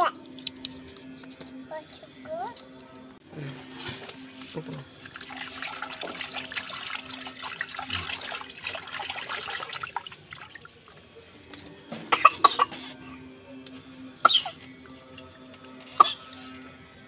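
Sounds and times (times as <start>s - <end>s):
water splashing in steel bowl: 4.0s - 11.2s, 14.8s - 16.6s.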